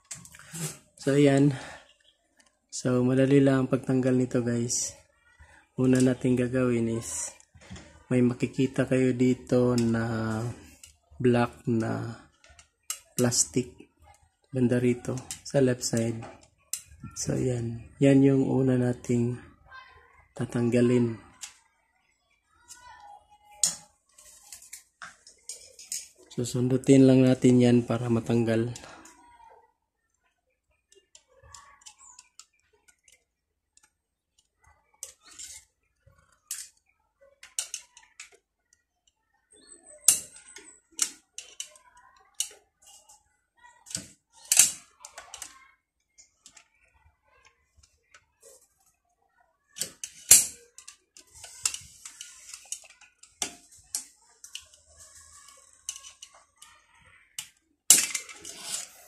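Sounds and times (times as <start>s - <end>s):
screwdriver scraping: 58.1s - 59.0s.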